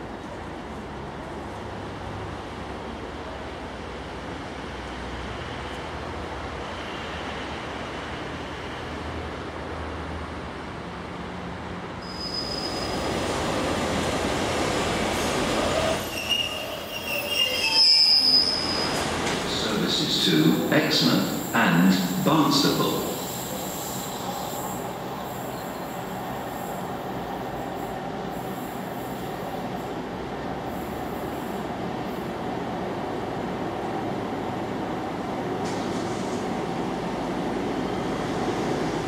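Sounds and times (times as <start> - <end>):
railcar wheels and brakes squealing: 12.0 - 13.8, 15.0 - 29.8.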